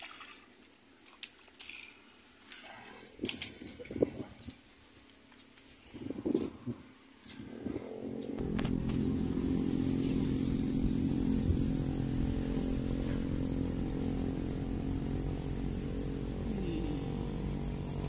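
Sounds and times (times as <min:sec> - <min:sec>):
small engine idling: 0:08.1 - 0:18.0.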